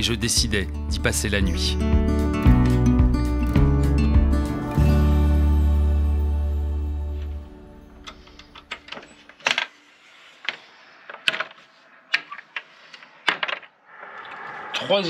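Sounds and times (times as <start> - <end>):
music: 0.0 - 9.0.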